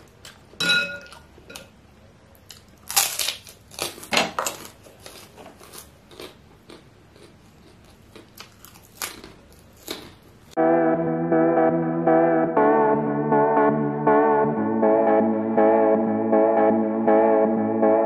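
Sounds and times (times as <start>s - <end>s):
person chewing with wet smacks: 4.6s - 10.2s.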